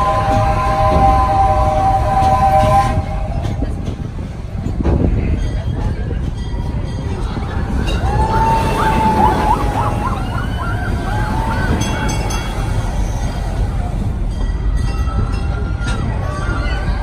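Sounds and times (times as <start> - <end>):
steam locomotive chime whistle: 0.0 - 3.8
train rumble: 0.0 - 17.0
roller coaster riders screaming: 6.6 - 17.0.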